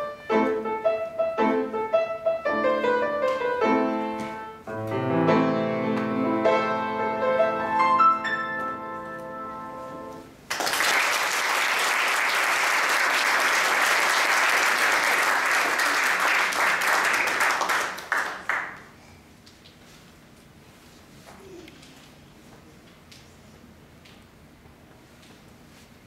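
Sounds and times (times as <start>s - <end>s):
grand piano notes ringing: 0.0s - 10.3s
audience applause: 10.5s - 18.9s.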